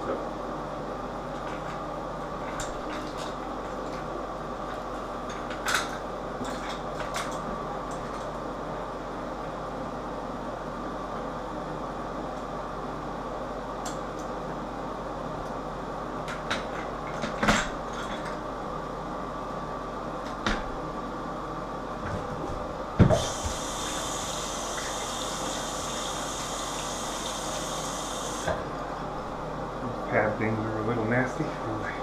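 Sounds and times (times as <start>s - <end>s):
steady hum: 0.0s - 32.0s
tap running: 23.0s - 28.6s.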